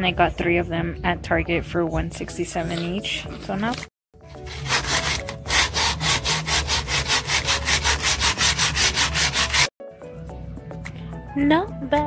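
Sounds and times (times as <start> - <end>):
sandpaper rubbing on wood: 4.3 - 9.7.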